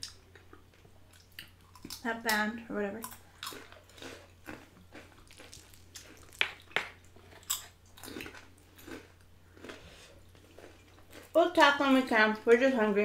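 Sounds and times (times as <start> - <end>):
chips crunching: 3.0 - 11.4
wet chewing: 3.0 - 11.4.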